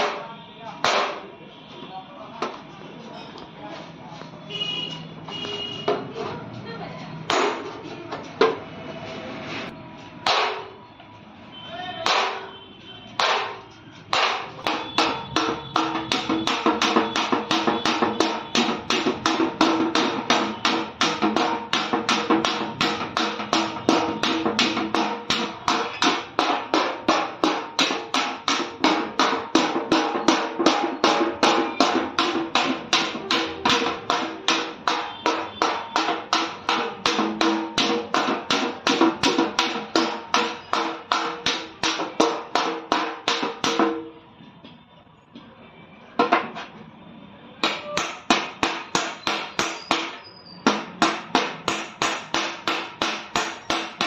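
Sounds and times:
hammer striking sheet metal: 0.0s - 1.4s, 10.2s - 10.8s, 12.0s - 12.6s, 13.2s - 44.1s, 47.6s - 54.0s.

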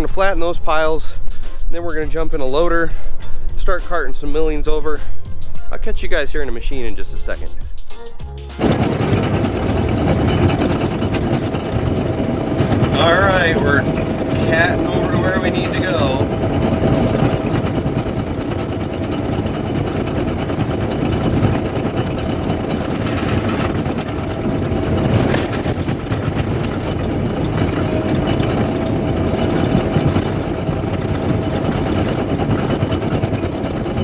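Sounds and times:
bulldozer diesel engine running: 0.0s - 34.0s
steel tracks clattering: 8.0s - 34.0s.

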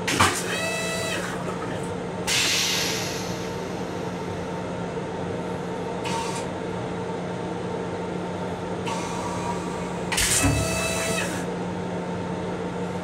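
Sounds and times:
brief hisses: 2.3s - 3.5s.

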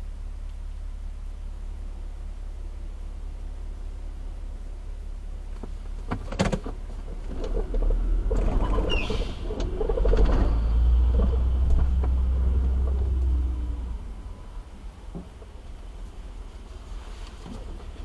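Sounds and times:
traffic engines and tyres rumbling: 0.0s - 18.0s
brief high squeal: 8.6s - 9.6s.

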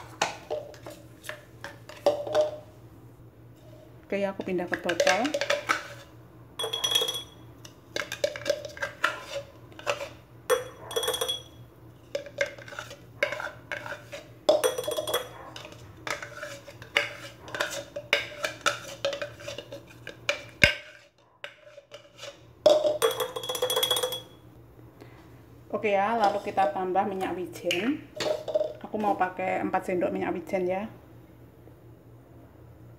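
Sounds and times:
spoon scraping and clinking: 4.9s - 24.4s.

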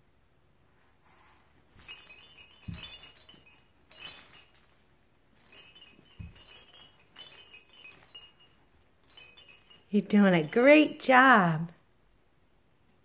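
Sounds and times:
play mat rustling: 1.0s - 9.9s
baby toys jingling and rattling: 1.7s - 11.7s.

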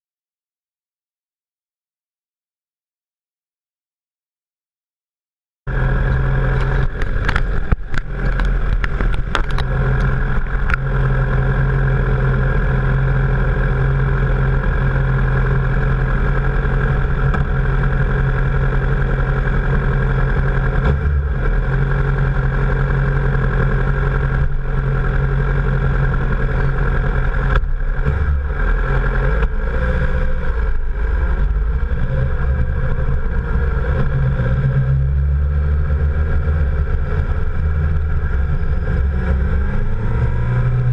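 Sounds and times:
motorcycle engine running: 5.7s - 40.9s
sharp clicks and knocks: 6.5s - 11.0s, 27.3s - 28.4s.

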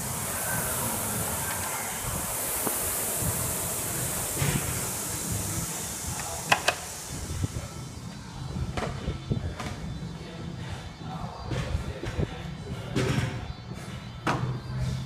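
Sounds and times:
rowing machine flywheel whooshing: 0.0s - 8.7s.

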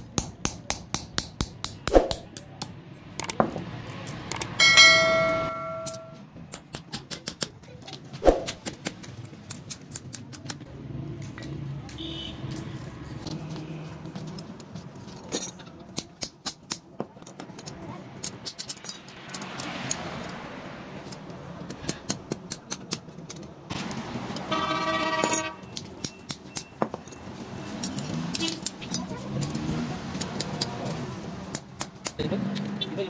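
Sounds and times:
hammer striking steel on anvil: 0.2s - 3.4s, 4.4s - 6.2s
vehicle horn: 12.0s - 12.5s, 24.5s - 25.6s.

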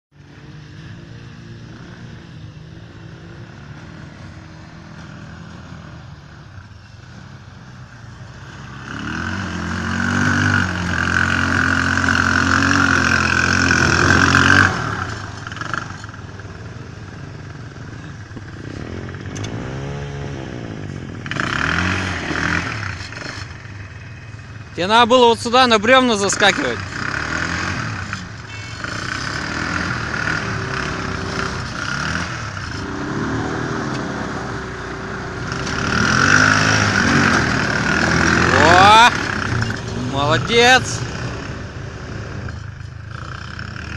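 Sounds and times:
quad bike engine revving: 0.2s - 43.9s.

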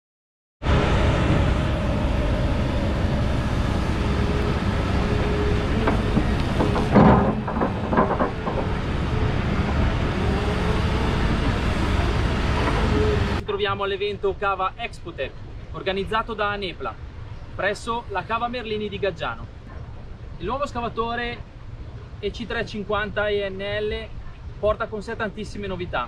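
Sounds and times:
excavator diesel engine humming: 0.6s - 13.5s
bucket knocks and clanks: 5.7s - 10.0s.

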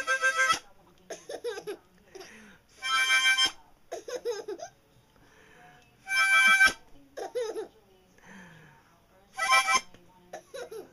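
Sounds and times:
baby laughing: 1.1s - 1.8s, 3.9s - 4.7s, 7.2s - 7.7s, 10.4s - 10.9s
harmonica chord: 2.7s - 3.6s, 6.0s - 6.8s, 9.4s - 10.0s.

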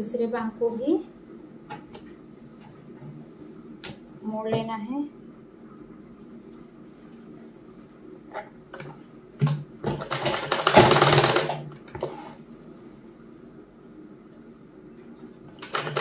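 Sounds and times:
sewing machine stitching: 10.0s - 12.2s.

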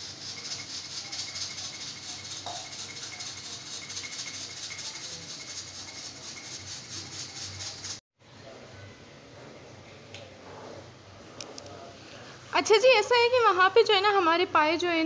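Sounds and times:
pressure cooker hissing and rattling: 0.0s - 8.0s.

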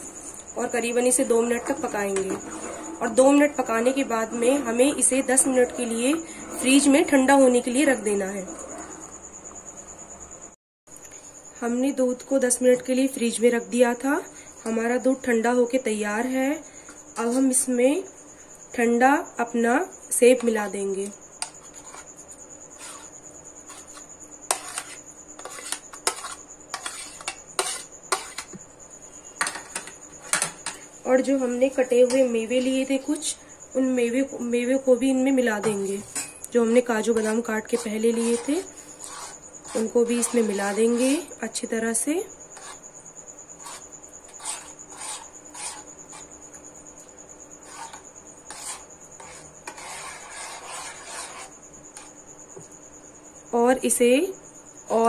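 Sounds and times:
metal spoon scraping pan: 1.0s - 7.9s, 21.4s - 28.6s, 29.4s - 30.9s, 35.6s - 41.4s, 42.6s - 42.9s, 43.6s - 46.3s, 47.6s - 52.2s
spoon scraping and knocking bowl: 22.8s - 28.6s, 29.4s - 30.8s, 35.6s - 41.2s.

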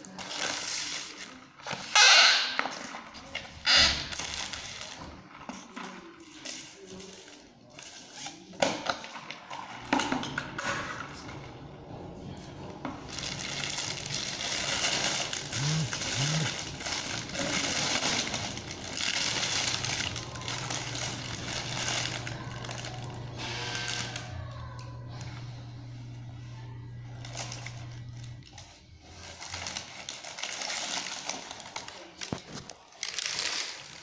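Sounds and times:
faint low hum: 10.3s - 29.6s
paper wrapper crinkling: 12.9s - 25.7s, 26.5s - 34.0s.

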